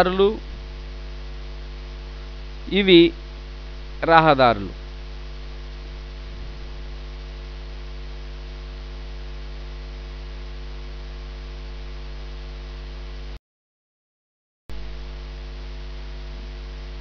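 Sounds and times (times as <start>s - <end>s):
background hiss: 0.0s - 12.1s
electrical mains hum: 0.0s - 13.4s, 14.7s - 17.0s.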